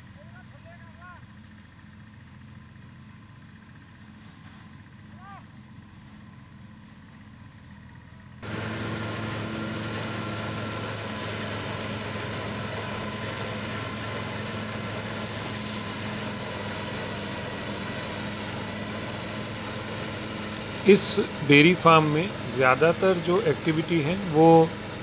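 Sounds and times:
tractor engines running: 0.0s - 25.0s
forage harvester rushing hiss: 8.4s - 25.0s.

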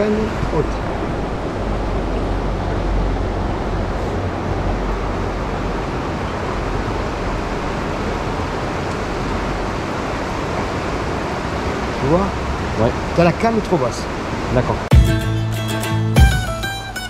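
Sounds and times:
river water rushing: 0.0s - 17.0s.

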